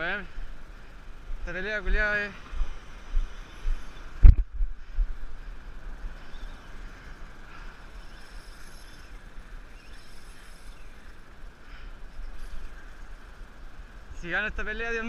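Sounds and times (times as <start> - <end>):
wind buffeting microphone: 1.1 - 11.2.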